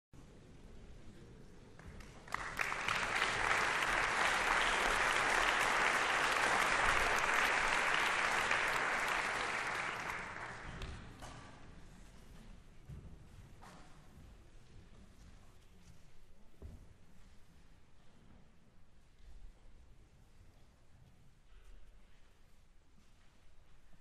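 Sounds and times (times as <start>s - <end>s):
audience applauding: 1.8s - 11.0s.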